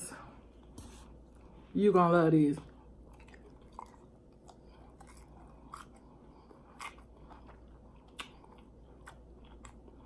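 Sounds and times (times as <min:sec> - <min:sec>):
person chewing crunchy food: 0:02.8 - 0:10.0.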